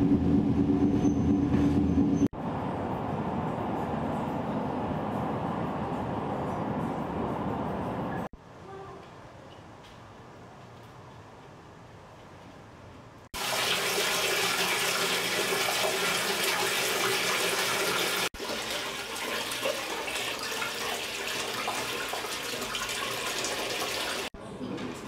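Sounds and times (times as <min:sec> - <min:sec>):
water pouring into bathtub: 0:13.4 - 0:24.3.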